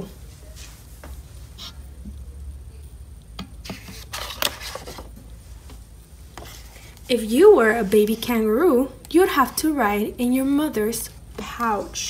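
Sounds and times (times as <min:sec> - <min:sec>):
paper page rustling and turning: 0:03.6 - 0:07.0.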